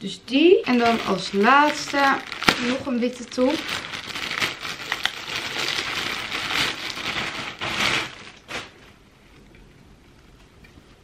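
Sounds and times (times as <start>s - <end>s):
plastic bag crinkling: 0.6s - 9.0s.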